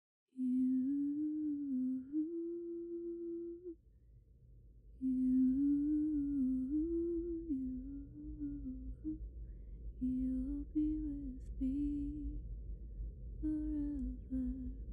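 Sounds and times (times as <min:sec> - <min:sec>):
woman humming: 0:00.4 - 0:03.8, 0:05.0 - 0:09.2, 0:10.0 - 0:12.4, 0:13.4 - 0:14.9.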